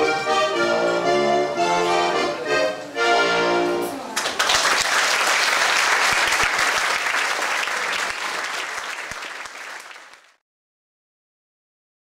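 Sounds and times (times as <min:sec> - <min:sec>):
audience applauding: 0:04.2 - 0:10.4.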